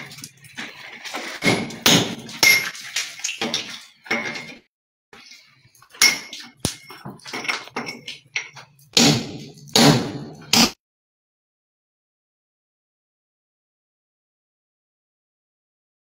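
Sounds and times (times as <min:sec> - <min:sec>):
hammer striking steel chisel: 0:09.0 - 0:10.8.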